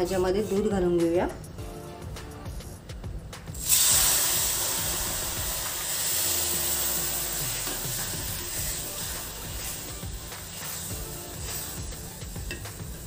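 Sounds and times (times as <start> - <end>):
loud sizzle and bubbling hiss: 3.5 - 13.0.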